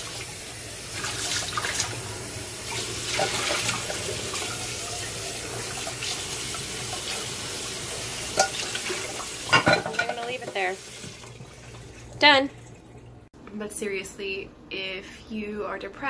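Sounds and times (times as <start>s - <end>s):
water splashing onto dishes: 0.0s - 2.0s, 2.6s - 13.3s
faucet running into steel sink: 0.0s - 13.1s.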